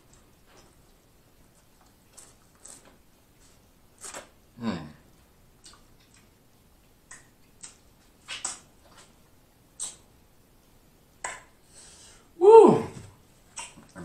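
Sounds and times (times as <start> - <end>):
wet mouth eating sounds: 5.6 - 9.2, 9.8 - 10.1, 13.5 - 14.0
person humming mmm: 12.4 - 13.1.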